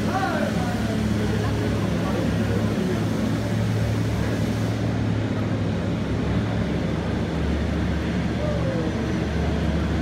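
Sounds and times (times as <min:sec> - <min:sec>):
ice resurfacer machine hum: 0:00.0 - 0:10.0.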